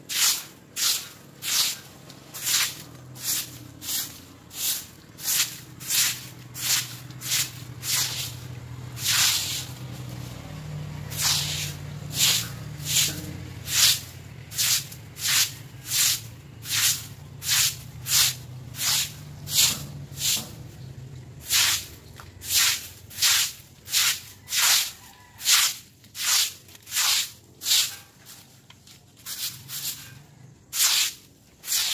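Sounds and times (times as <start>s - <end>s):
broom sweeping wet concrete: 0.0s - 31.9s.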